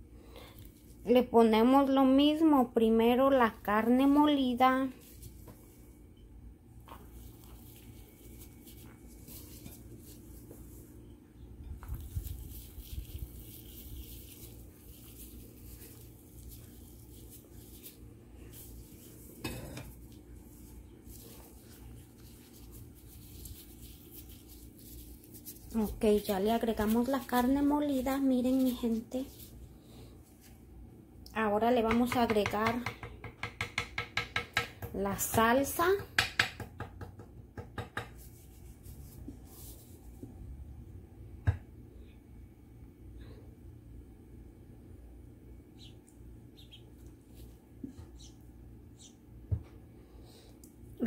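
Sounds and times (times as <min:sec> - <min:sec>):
steady low hum: 0:00.0 - 0:31.7
soft rustling: 0:04.9 - 0:06.0, 0:06.8 - 0:11.1, 0:11.7 - 0:30.6, 0:38.2 - 0:40.4, 0:46.6 - 0:48.4
handling sounds of a tray: 0:06.8 - 0:11.0, 0:11.6 - 0:30.6.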